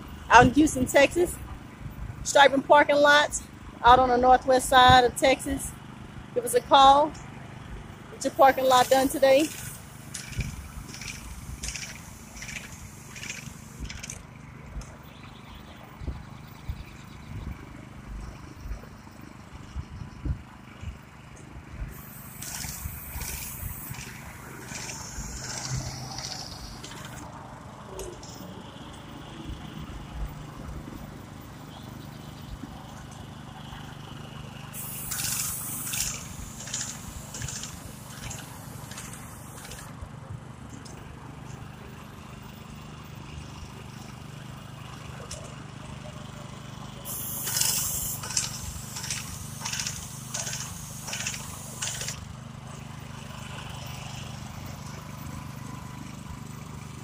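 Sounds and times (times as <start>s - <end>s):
small gas engine running: 4.6s - 57.0s
paint spray hissing: 8.3s - 14.2s, 21.9s - 27.2s, 34.8s - 39.9s, 47.1s - 52.2s.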